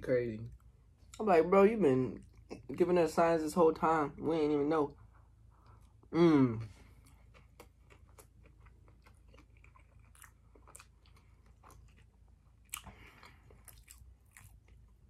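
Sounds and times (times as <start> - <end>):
soft chewing mouth clicks: 6.9 - 15.0.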